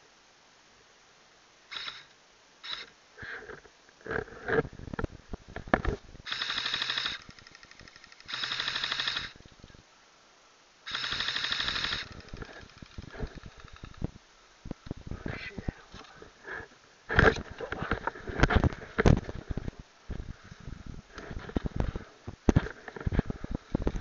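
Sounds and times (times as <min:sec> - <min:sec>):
airsoft rifle automatic bursts: 0:06.2 - 0:09.4, 0:10.9 - 0:14.0
rustling and clicking: 0:11.5 - 0:14.1, 0:15.9 - 0:19.8, 0:20.5 - 0:24.0.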